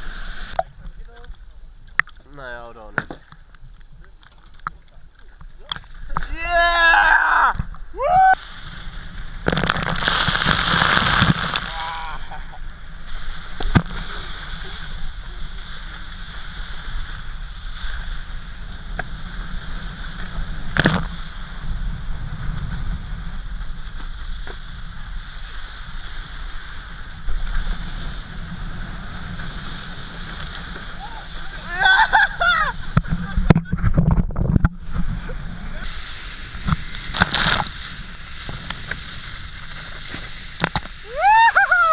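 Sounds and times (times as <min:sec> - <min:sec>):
water rushing and spraying: 0:00.0 - 0:00.8, 0:07.9 - 0:41.9
loud splash: 0:08.4 - 0:15.0.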